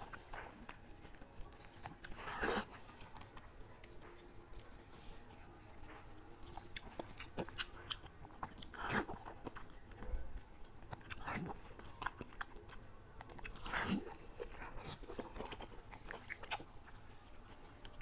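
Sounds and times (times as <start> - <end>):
biting and chewing food: 0.0 - 18.0.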